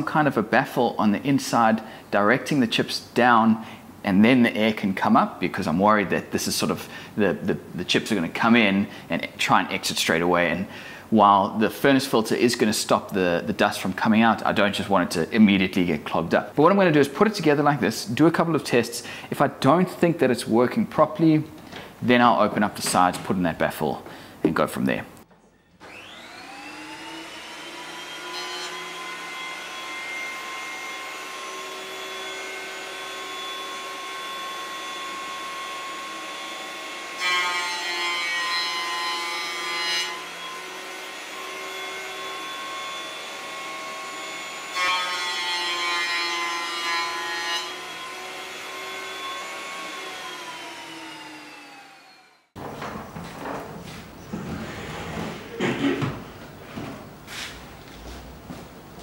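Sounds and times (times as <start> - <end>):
planer cutting boards: 25.8 - 52.9
thickness planer whining: 25.8 - 53.1.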